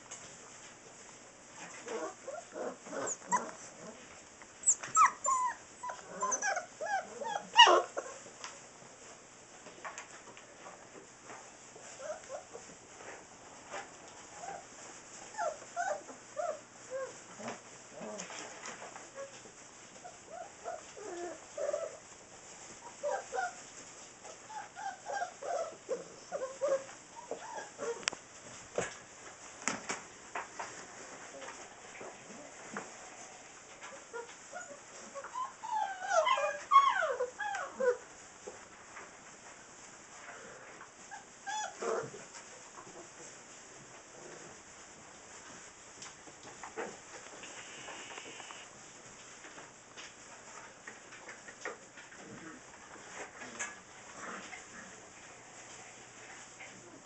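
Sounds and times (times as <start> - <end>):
puppies whimpering and yipping: 1.8 - 3.9, 4.6 - 8.3, 15.3 - 17.2, 22.8 - 23.6, 24.3 - 28.0, 33.9 - 38.0, 41.0 - 41.8.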